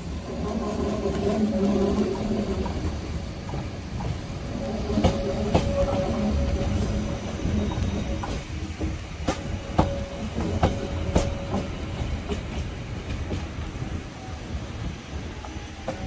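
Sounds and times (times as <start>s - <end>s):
train clicks: 0.0s - 16.0s
train wheels rumbling on rail: 0.0s - 16.0s
faint wheel squeal: 7.4s - 8.4s.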